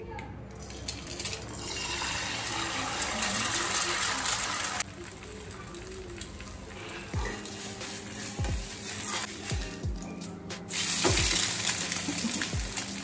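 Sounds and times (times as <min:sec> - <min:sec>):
water gushing from kitchen tap: 0:00.6 - 0:07.7.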